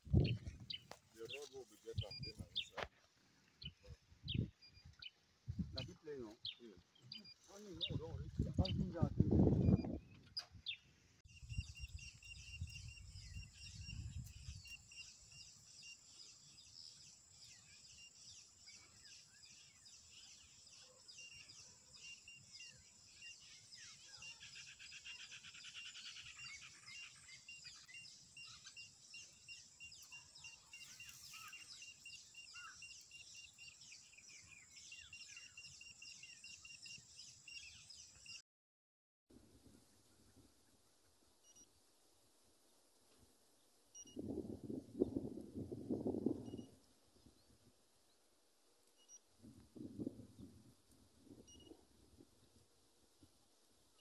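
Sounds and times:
bird chirps: 0.1s - 2.8s, 9.6s - 38.4s.

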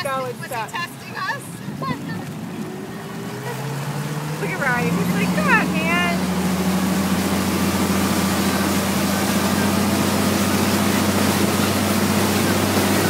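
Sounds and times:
churning wake water: 0.0s - 13.0s
motorboat engine droning: 0.0s - 13.0s.

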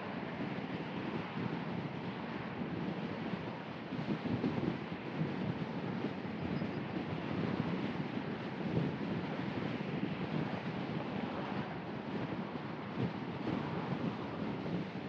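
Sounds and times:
car road and wind noise: 0.0s - 15.0s.

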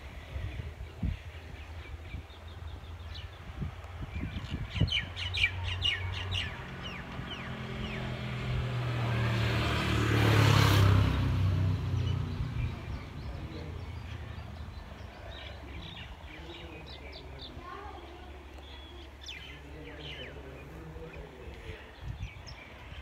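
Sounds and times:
small birds chirping: 0.2s - 8.4s, 11.0s - 23.0s
vehicle passing: 5.0s - 18.2s.

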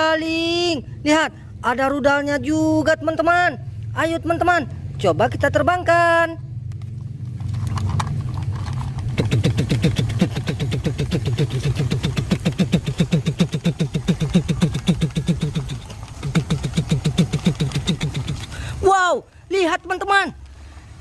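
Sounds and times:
toy plane propellers clattering: 7.4s - 18.6s.

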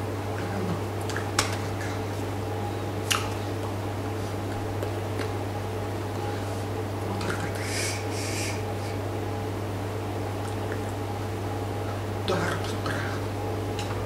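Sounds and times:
steady low hum: 0.0s - 14.0s
hands slapping together: 3.0s - 3.4s.

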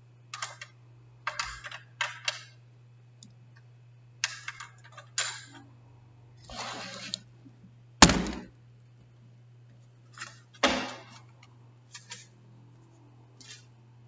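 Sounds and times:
steady low hum: 0.0s - 14.0s
recording device thunks: 8.0s - 8.5s.

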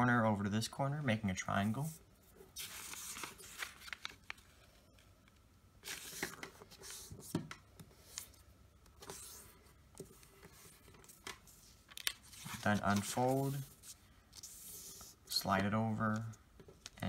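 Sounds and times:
paper rustling on wooden table: 2.6s - 4.4s, 9.0s - 17.0s.

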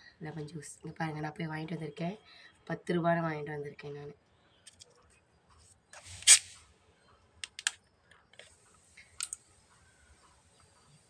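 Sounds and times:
plastic bottle cap twisting off: 6.0s - 6.6s
light plastic clicks: 7.4s - 9.4s.

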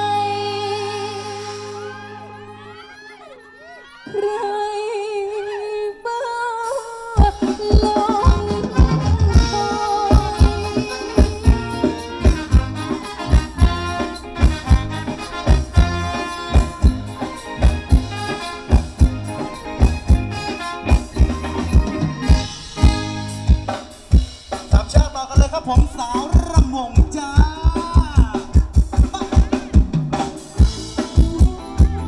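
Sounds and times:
dance band playing live: 0.0s - 5.4s, 6.6s - 32.0s
drums with dance beat: 6.7s - 32.0s
held melody line: 7.2s - 32.0s.

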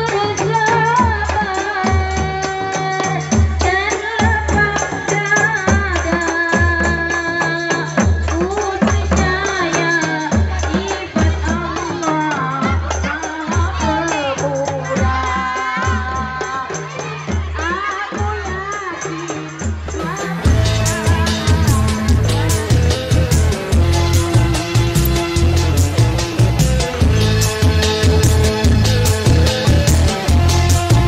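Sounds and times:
girls singing: 8.8s - 24.5s
frame drums beating: 15.9s - 31.0s.

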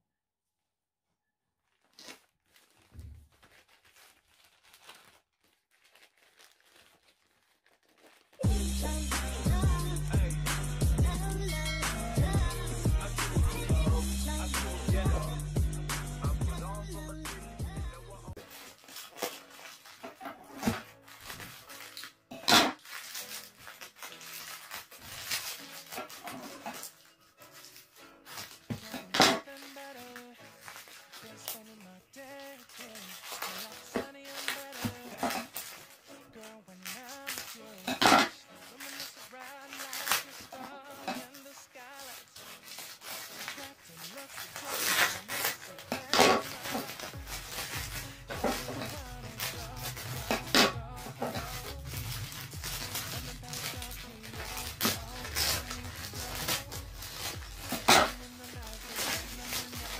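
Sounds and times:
plastic bag crinkling and tearing: 1.6s - 8.5s, 18.3s - 59.9s
shipping label peeling: 18.4s - 59.9s.

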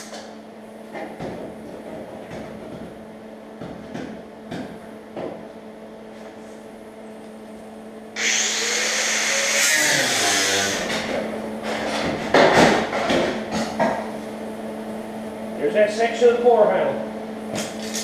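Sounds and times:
pneumatic cut-off tool running: 8.2s - 11.1s.

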